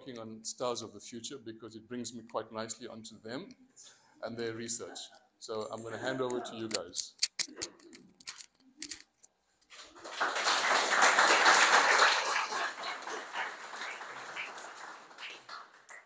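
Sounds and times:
audience applauding: 0:09.8 - 0:16.0.

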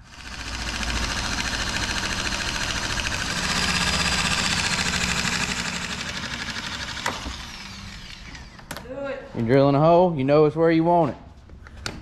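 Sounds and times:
electric metal shear cutting: 0:00.0 - 0:08.7.

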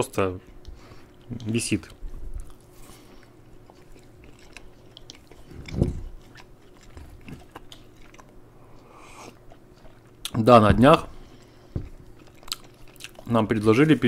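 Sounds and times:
people chewing: 0:00.4 - 0:14.0
wet mouth clicks: 0:03.8 - 0:10.4.

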